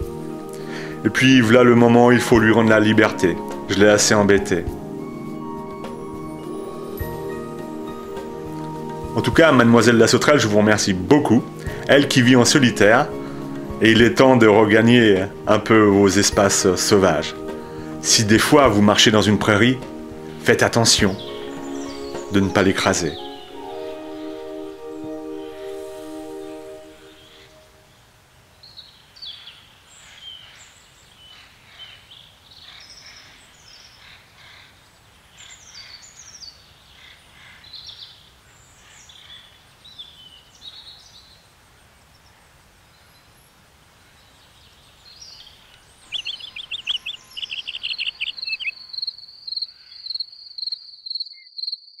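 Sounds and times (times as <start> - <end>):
birds singing and chirping: 0.5 - 27.7, 44.4 - 51.8
evenly pulsed high chirping: 16.3 - 27.8, 45.4 - 52.0
pulsed insect trill: 46.1 - 52.0.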